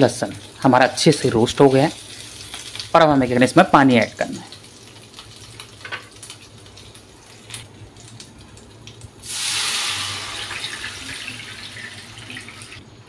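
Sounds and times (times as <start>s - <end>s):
oil crackling: 0.0s - 12.8s.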